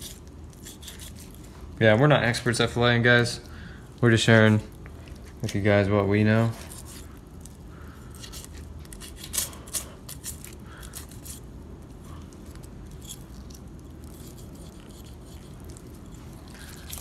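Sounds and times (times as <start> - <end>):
knife scraping fish scales: 0.0 - 1.5, 6.5 - 7.2, 7.9 - 11.5, 12.1 - 17.0
faint steady hum: 0.0 - 17.0.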